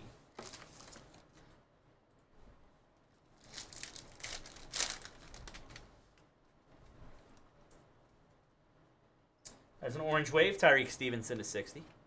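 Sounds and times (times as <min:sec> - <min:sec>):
foil wrapper tearing and crinkling: 0:03.4 - 0:05.8.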